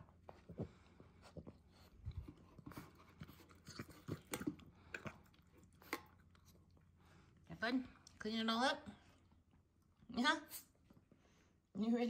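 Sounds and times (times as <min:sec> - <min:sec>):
puppy chewing and licking: 0:00.5 - 0:07.1.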